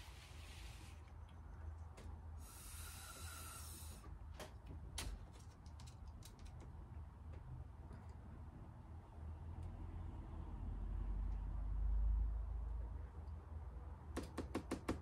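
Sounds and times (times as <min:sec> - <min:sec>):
breath blown through a straw: 0:02.4 - 0:04.0.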